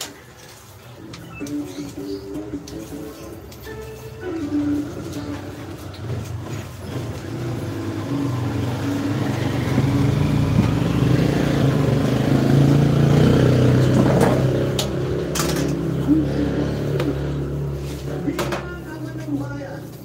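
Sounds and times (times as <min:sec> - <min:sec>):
vehicle engine running: 0:04.6 - 0:19.3.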